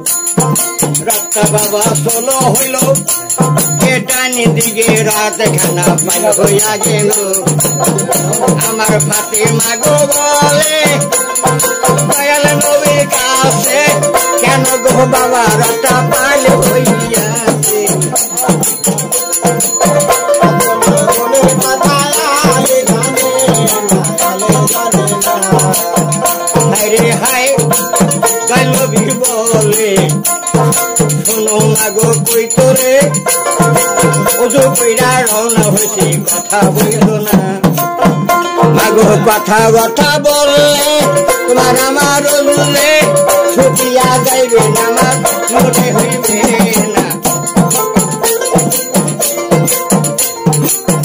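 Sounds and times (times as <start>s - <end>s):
quick percussion beat: 0.0s - 51.0s
plucked lute: 44.6s - 51.0s.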